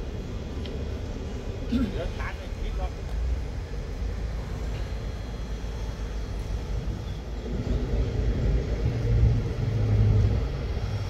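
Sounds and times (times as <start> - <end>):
low engine rumble: 0.0 - 11.0.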